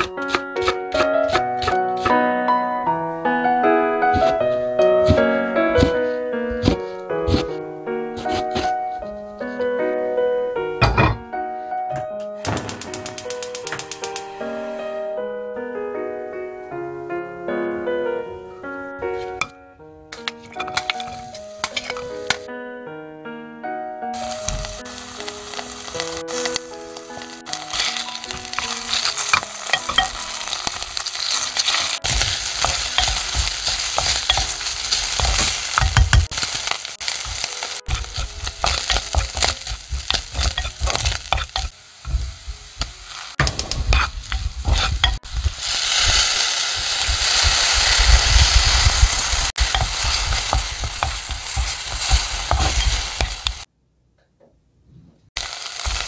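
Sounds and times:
wooden spatula scraping pot: 4.1s - 7.6s, 8.2s - 9.0s, 20.2s - 22.4s, 27.5s - 53.7s
oil sizzling in a pot: 20.5s - 22.5s, 24.2s - 53.7s, 55.4s - 56.0s.

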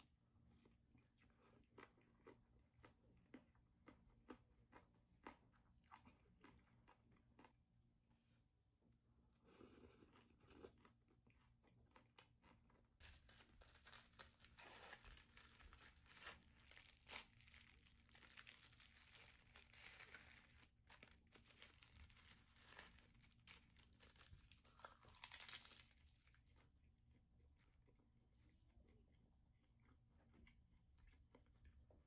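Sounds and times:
crinkling and rustling with clicks: 13.0s - 26.6s.

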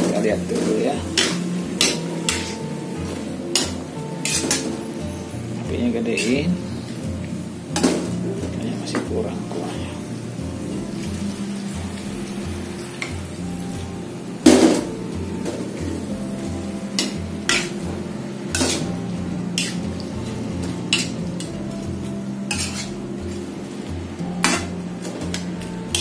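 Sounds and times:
low steady hum: 0.0s - 26.0s
spatula scraping and clanking in wok: 0.0s - 26.0s.

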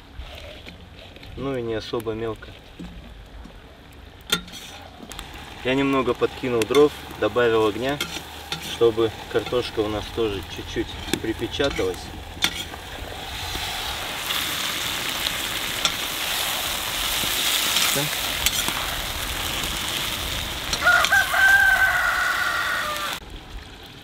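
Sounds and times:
metal skimmer scraping: 4.3s - 18.9s
meat and vegetables sizzling: 4.4s - 23.3s
rooster crowing: 20.7s - 23.2s.

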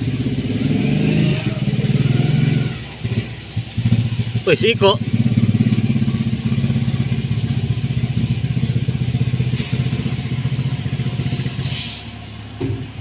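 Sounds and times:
excavator diesel engine running: 0.0s - 13.0s.

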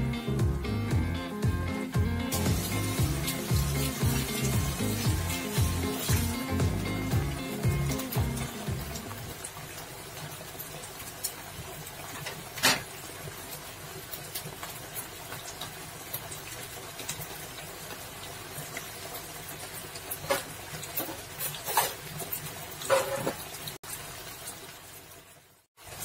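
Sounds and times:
sauce bubbling in a wok: 2.3s - 26.0s.

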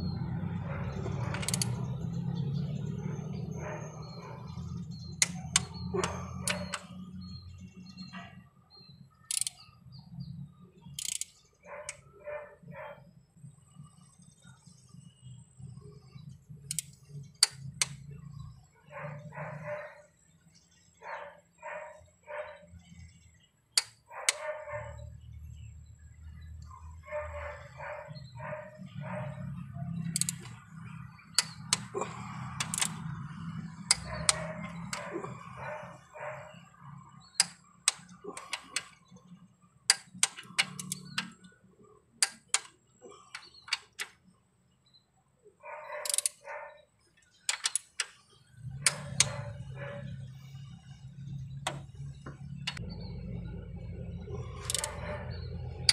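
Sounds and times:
socket wrench clicking: 1.0s - 2.0s, 5.0s - 6.9s, 9.3s - 9.7s, 10.9s - 12.0s, 16.6s - 18.0s, 23.7s - 24.5s, 30.0s - 35.1s, 37.3s - 39.0s, 39.9s - 41.5s, 42.2s - 42.7s, 43.3s - 44.2s, 46.0s - 46.4s, 47.4s - 48.2s, 48.8s - 49.8s, 51.7s - 52.8s, 54.4s - 55.9s.

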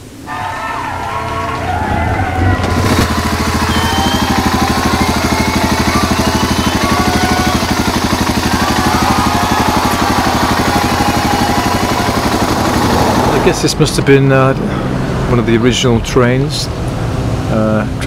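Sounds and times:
motorcycle engine idling: 2.0s - 13.7s.

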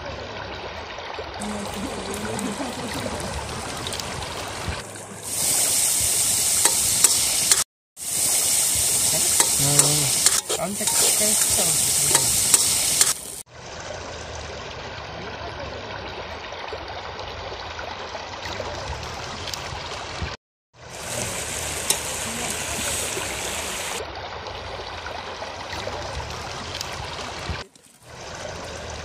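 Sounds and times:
food sizzling in oil: 5.2s - 13.4s, 20.9s - 24.0s
metal ladle scraping a pan: 9.2s - 13.3s.

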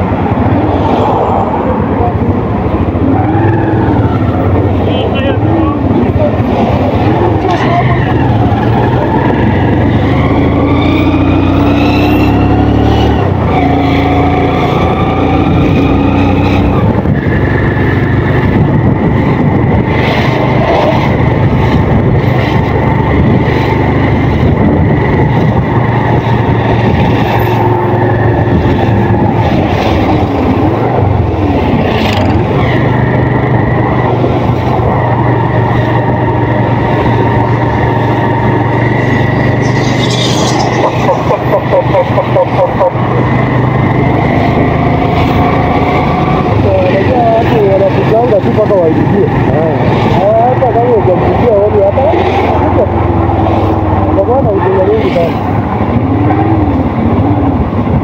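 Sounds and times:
motorcycle engine accelerating: 2.8s - 58.0s.

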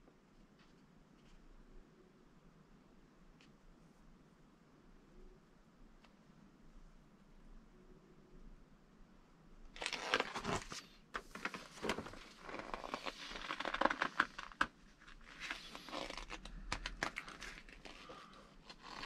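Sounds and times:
plastic bags crinkling: 9.8s - 19.0s.

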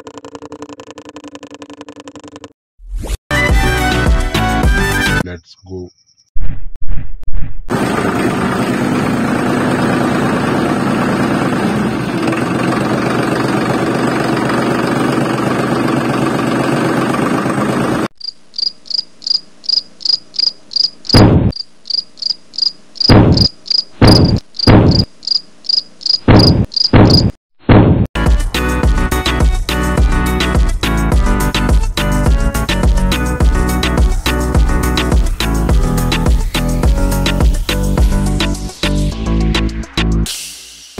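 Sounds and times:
cricket chirping: 5.6s - 6.3s, 18.2s - 27.3s.

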